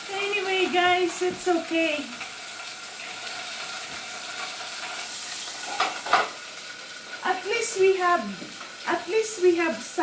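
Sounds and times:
meat sizzling in a pan: 0:00.0 - 0:10.0
pan or utensil clattering: 0:04.4 - 0:06.4.

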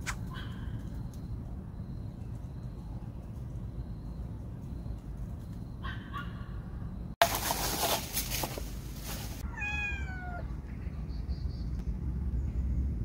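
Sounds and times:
rustling: 0:07.2 - 0:09.5
cat meowing: 0:09.4 - 0:10.5.

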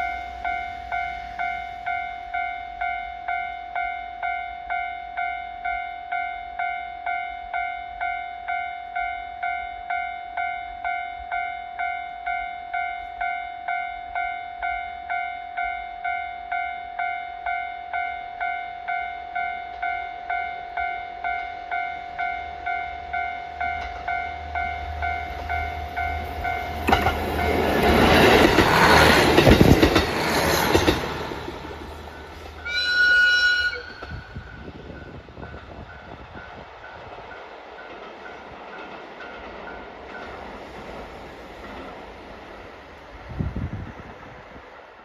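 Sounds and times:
diesel railcar passing: 0:00.0 - 0:45.0
train horn blast: 0:32.6 - 0:34.5.

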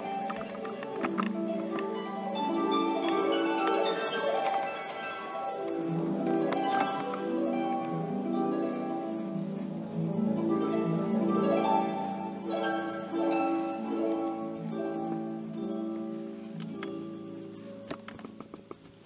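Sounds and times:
harp music: 0:00.0 - 0:19.0.

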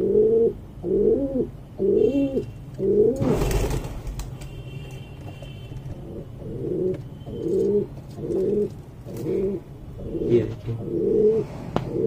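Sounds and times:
pigeons cooing: 0:00.0 - 0:04.2, 0:05.8 - 0:12.0.

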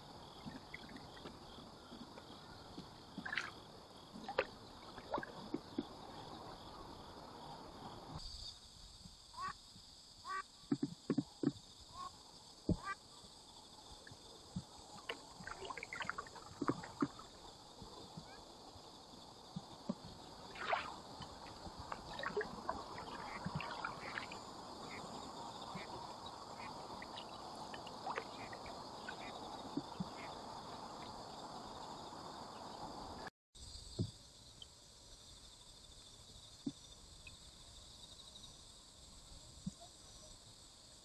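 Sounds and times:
paddle strokes sloshing water: 0:00.2 - 0:06.9, 0:14.5 - 0:18.8, 0:19.5 - 0:31.2
small knocks against canoe hull: 0:10.7 - 0:11.6
water drips: 0:14.0 - 0:18.0, 0:19.6 - 0:25.0, 0:26.6 - 0:30.3.

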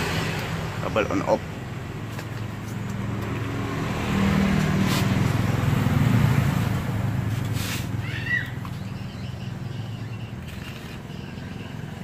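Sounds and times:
engine running: 0:00.0 - 0:12.0
bird chirping: 0:08.0 - 0:12.0.

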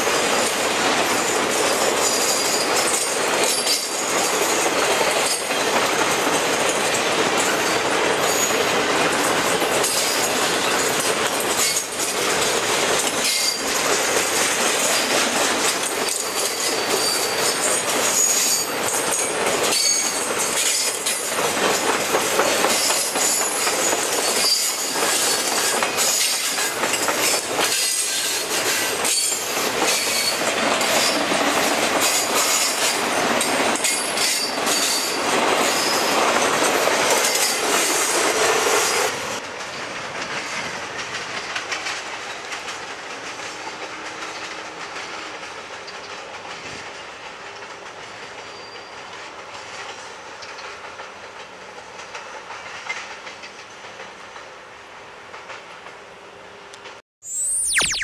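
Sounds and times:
train wheels clacking over rail joints: 0:00.0 - 0:54.6
high wheel squeal: 0:07.6 - 0:08.6, 0:16.0 - 0:21.1, 0:22.7 - 0:26.7, 0:27.7 - 0:31.3, 0:33.8 - 0:36.2.

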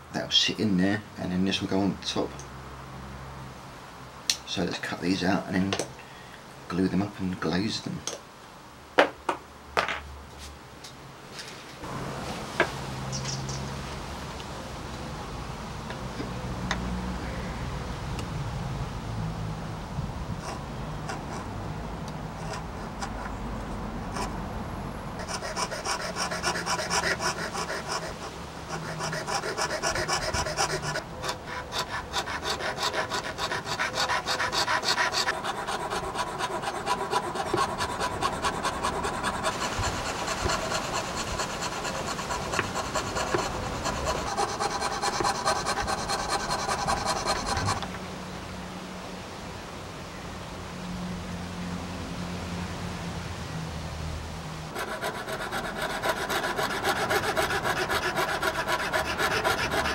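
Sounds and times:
saw cutting thin plywood: 0:25.2 - 0:47.8, 0:54.8 - 0:59.9.

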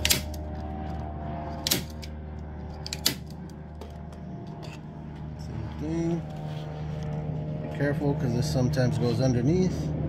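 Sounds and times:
staple gun firing into wood: 0:00.0 - 0:00.4, 0:01.6 - 0:02.0, 0:02.9 - 0:03.3
steady low hum: 0:00.0 - 0:10.0.

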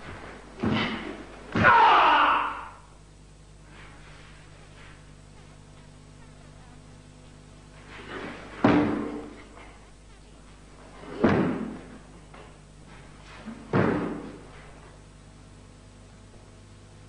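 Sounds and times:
bare feet stamping on wooden floor: 0:08.5 - 0:09.4, 0:11.1 - 0:12.5, 0:13.7 - 0:14.4.

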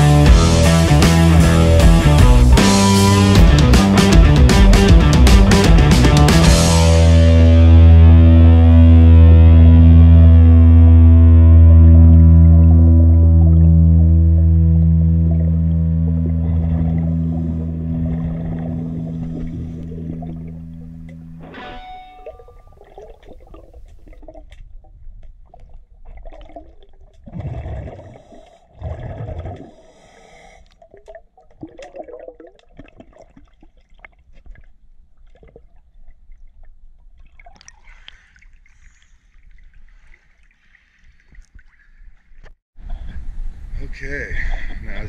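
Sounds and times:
bubbles gurgling and crackling: 0:12.2 - 0:21.4, 0:22.2 - 0:40.3
diver breathing through regulator: 0:17.3 - 0:20.4, 0:28.0 - 0:28.8, 0:29.6 - 0:30.8.

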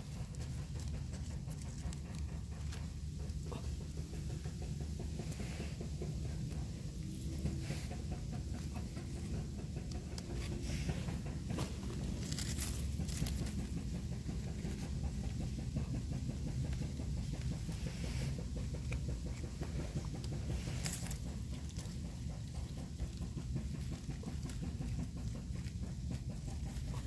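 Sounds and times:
steady low rumble: 0:00.0 - 0:27.0
leaf litter rustling and crackling: 0:11.5 - 0:13.8.

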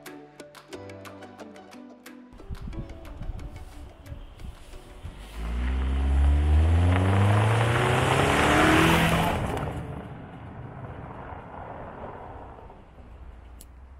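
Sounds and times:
tyres crunching gravel: 0:03.7 - 0:13.9
car engine accelerating: 0:04.9 - 0:13.9.

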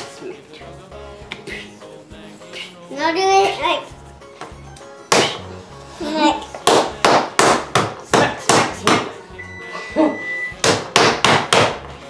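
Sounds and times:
hands slapping dough on wood: 0:04.4 - 0:05.5, 0:06.5 - 0:09.2, 0:10.6 - 0:11.9.

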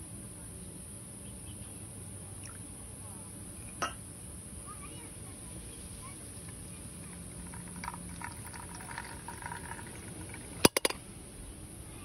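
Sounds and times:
coffee trickling into mug: 0:06.4 - 0:11.0.

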